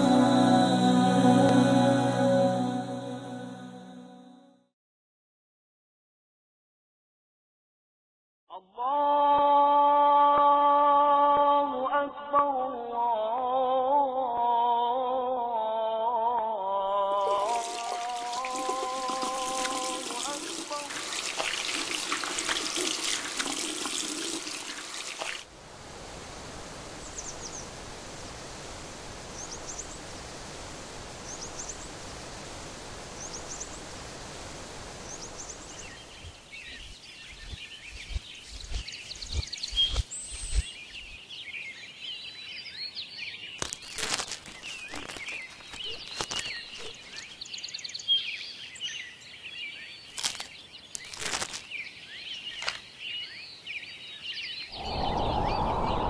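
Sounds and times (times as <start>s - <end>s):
water running from a tap onto hands: 17.2s - 25.5s
steady hiss: 25.5s - 36.6s.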